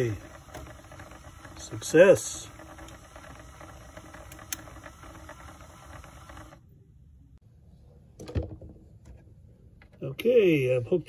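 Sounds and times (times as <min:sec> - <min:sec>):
model locomotive motor whirring: 0:00.0 - 0:06.6.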